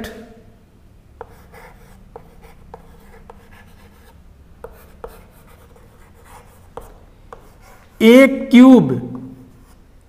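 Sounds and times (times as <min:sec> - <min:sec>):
chalk tapping and scratching: 0:01.2 - 0:08.0, 0:09.2 - 0:09.9.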